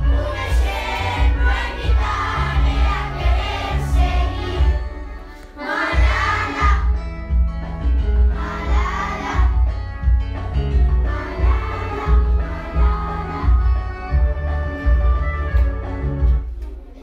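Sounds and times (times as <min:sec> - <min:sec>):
group of people singing: 0:00.0 - 0:07.0, 0:08.2 - 0:09.8, 0:10.7 - 0:14.0
accompaniment with strong bass: 0:00.0 - 0:17.0.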